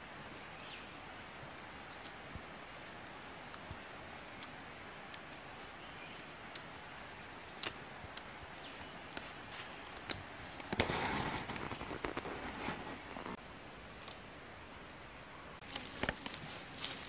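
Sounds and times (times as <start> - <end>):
forest insects droning: 0.0 - 17.0
small clicks and snaps: 7.6 - 8.3.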